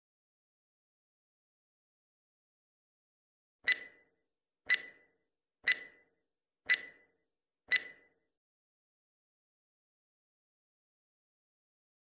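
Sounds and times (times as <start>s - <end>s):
clock ticks with metallic ring: 3.6s - 8.2s.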